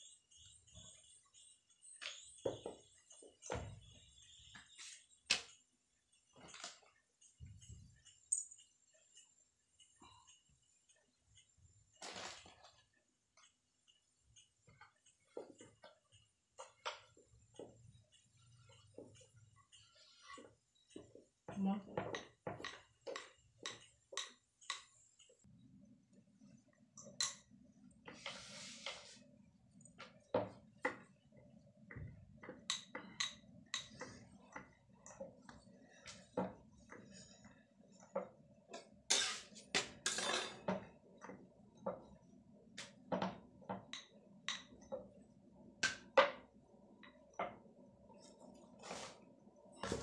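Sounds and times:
rolling pin tapping on board: 0:21.0 - 0:24.9
rustling scrape: 0:28.2 - 0:29.2, 0:48.8 - 0:49.2.

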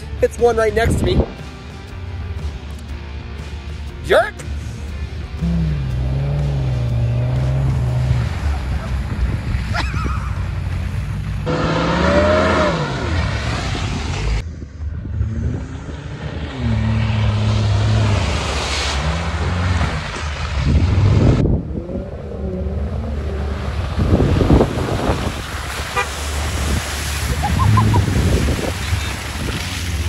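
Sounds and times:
car engine revving: 0:04.4 - 0:30.0.

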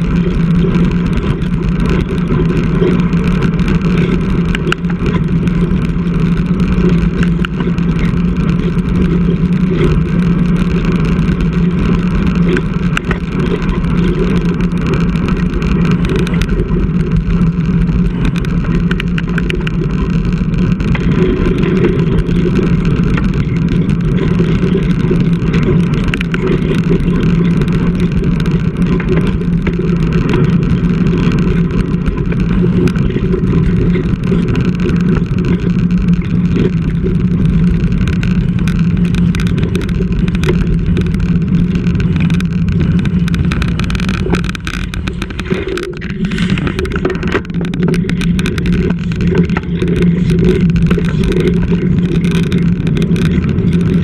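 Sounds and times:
low drone: 0:00.0 - 0:54.0
road rumble: 0:00.0 - 0:54.0.

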